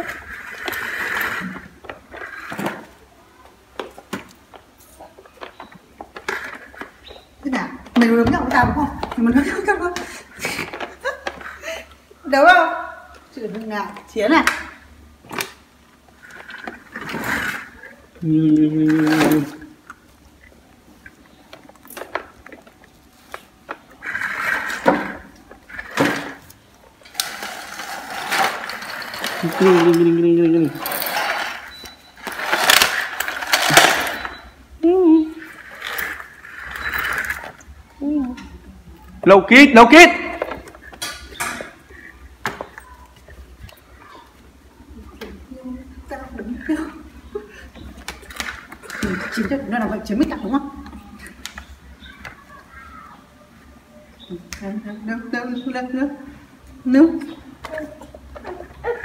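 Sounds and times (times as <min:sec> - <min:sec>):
rustling scrape: 0:00.0 - 0:02.8, 0:16.2 - 0:18.0, 0:23.1 - 0:26.4, 0:27.1 - 0:30.0, 0:30.7 - 0:34.4.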